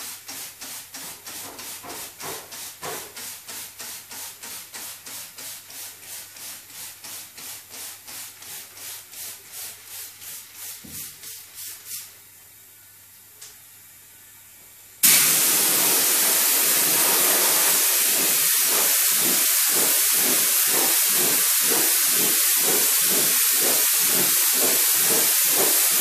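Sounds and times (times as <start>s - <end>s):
spray bottle squirting: 15.0s - 26.0s.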